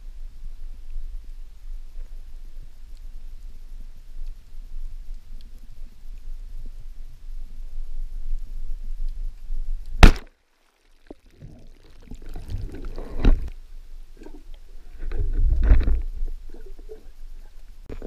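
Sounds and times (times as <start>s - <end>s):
speargun firing clack: 10.0s - 10.3s.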